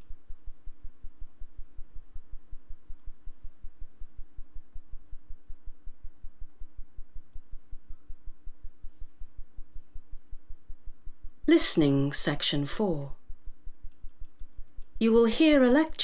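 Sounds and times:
faint steady tones: 0.0s - 16.0s.

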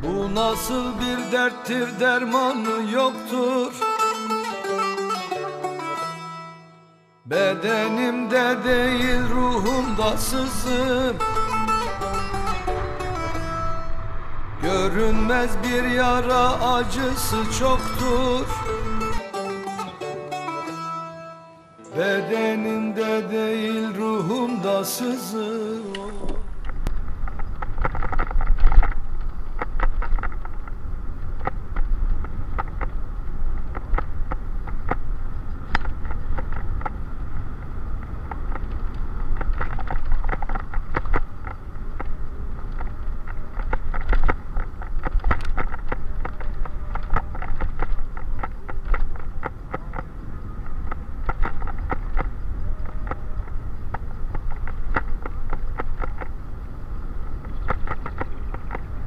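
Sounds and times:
wind buffeting microphone: 0.0s - 1.3s, 8.6s - 19.2s, 26.1s - 59.0s
bicycle tyre noise: 8.8s - 19.2s, 26.4s - 59.0s
bike rattles and knocks: 26.7s - 37.0s, 38.0s - 56.4s.

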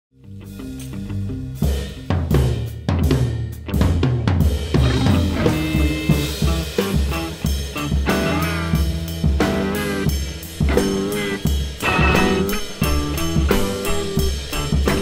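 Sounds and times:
drum kit hits: 1.6s - 15.0s
electric guitar notes: 4.8s - 15.0s.

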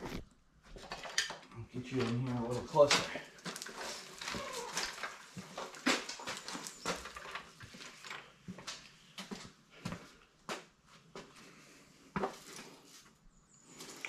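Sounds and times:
footsteps on concrete: 7.7s - 12.6s.

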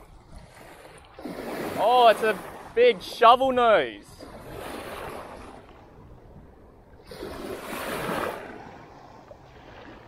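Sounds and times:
small wave washing on shore: 0.0s - 5.9s, 7.0s - 10.0s
low rumble of wind and sea: 0.0s - 10.0s.

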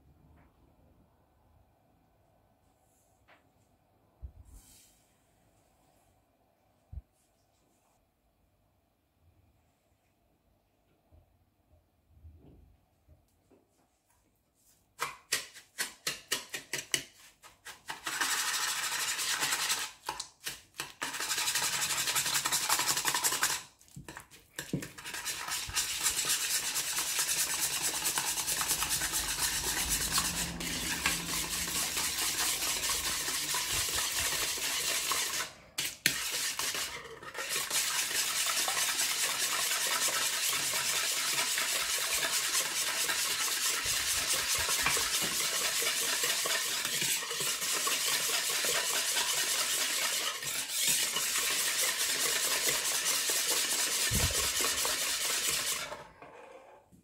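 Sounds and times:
whisk beating in bowl: 17.8s - 56.0s.

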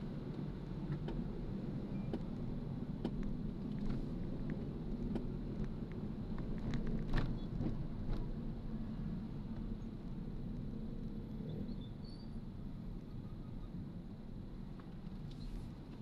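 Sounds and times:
vehicle rumble: 0.0s - 16.0s.

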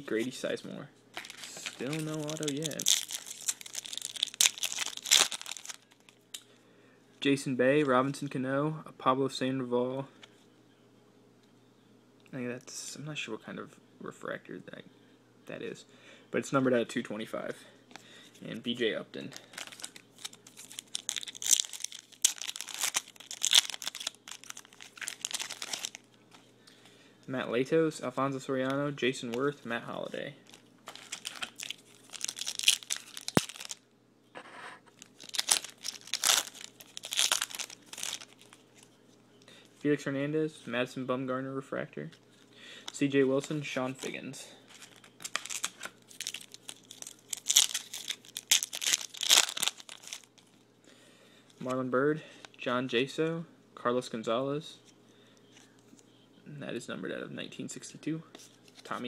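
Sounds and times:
foil wrapper crinkling and tearing: 1.2s - 6.2s, 19.3s - 26.1s, 30.4s - 33.8s, 35.0s - 38.6s, 43.4s - 50.6s.

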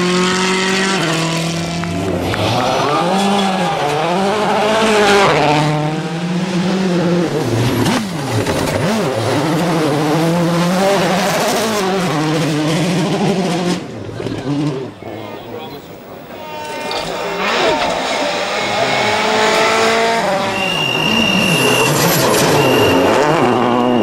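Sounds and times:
rally car engine revving: 0.0s - 24.0s.

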